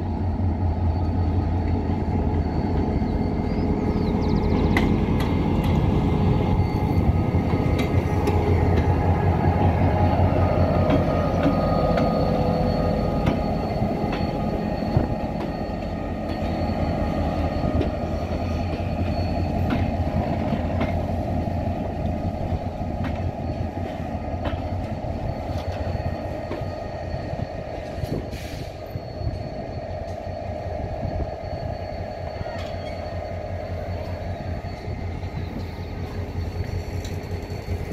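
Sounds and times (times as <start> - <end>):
diesel locomotive rumble: 0.0 - 37.9
train wheels clicking: 4.6 - 9.6.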